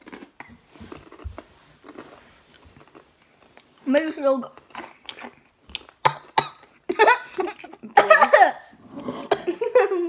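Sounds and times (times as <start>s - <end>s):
girls coughing: 6.0s - 6.6s, 7.9s - 9.7s.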